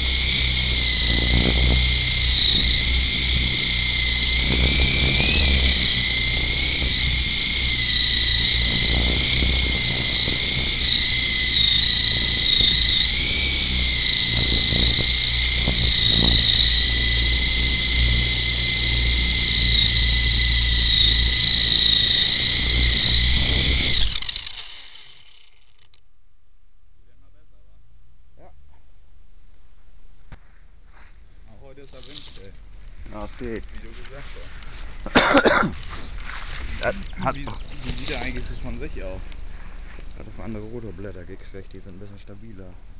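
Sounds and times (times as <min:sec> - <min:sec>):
wind buffeting microphone: 0:00.0 - 0:24.4
rc helicopter motor whine: 0:00.0 - 0:26.0, 0:31.2 - 0:42.9.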